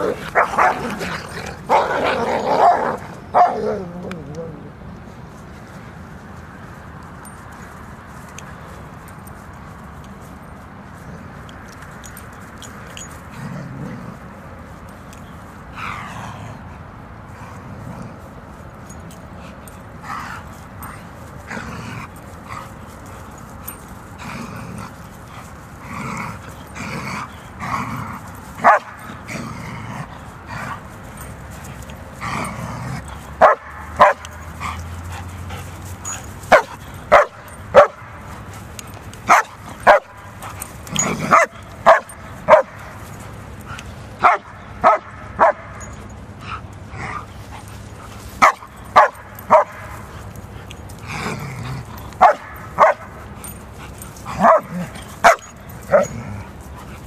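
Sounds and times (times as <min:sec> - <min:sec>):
dogs barking: 0:00.0 - 0:03.8, 0:26.4 - 0:29.3, 0:31.7 - 0:45.8, 0:48.4 - 0:57.0
dogs whining and yipping: 0:31.1 - 0:44.7, 0:45.8 - 0:57.0.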